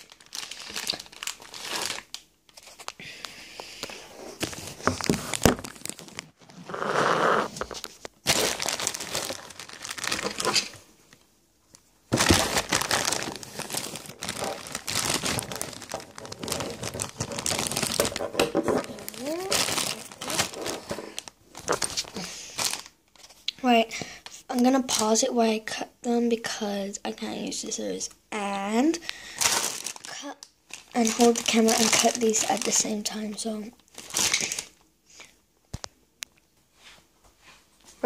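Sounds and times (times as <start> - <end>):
plastic bags crinkling: 0.0 - 3.0, 3.8 - 10.9, 12.1 - 23.3, 29.1 - 34.8.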